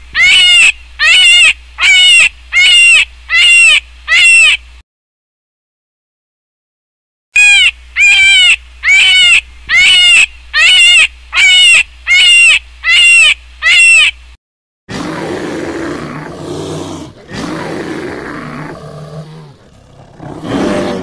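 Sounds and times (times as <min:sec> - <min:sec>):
animal crying loudly: 0:00.2 - 0:04.6, 0:07.4 - 0:14.1, 0:14.9 - 0:21.0.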